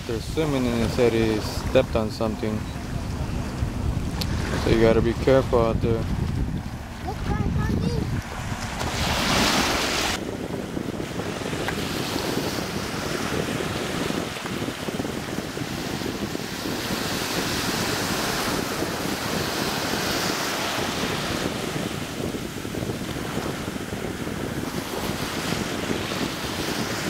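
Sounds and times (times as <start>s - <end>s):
surf washing up on beach: 0.0s - 27.0s
wind rumbling on microphone: 0.0s - 27.0s.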